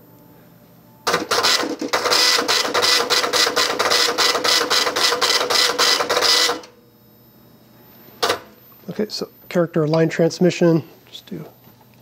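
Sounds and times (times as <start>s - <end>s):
dot-matrix printer chattering: 1.1s - 6.7s
printer carriage motor: 1.1s - 6.8s, 8.2s - 8.5s.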